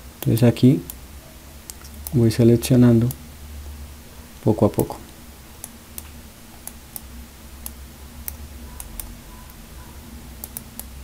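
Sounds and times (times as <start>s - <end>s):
steady low hum: 0.0s - 11.0s
computer mouse clicking: 5.6s - 9.6s, 10.4s - 11.0s.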